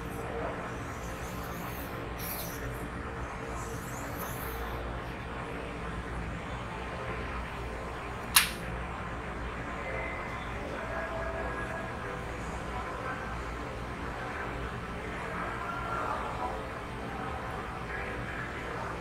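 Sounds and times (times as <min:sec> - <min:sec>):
steady background hum: 0:00.0 - 0:19.0
sharp click: 0:08.2 - 0:08.7.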